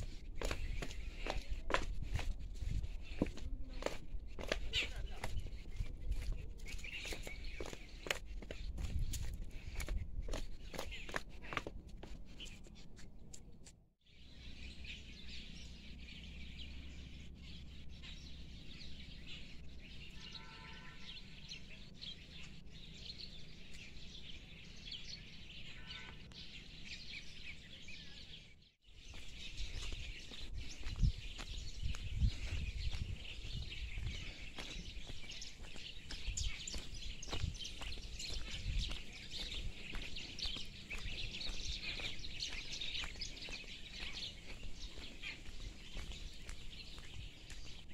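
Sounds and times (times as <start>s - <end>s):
footsteps on dirt path: 0.0s - 13.8s, 28.9s - 47.9s
small birds chirping: 0.0s - 47.9s.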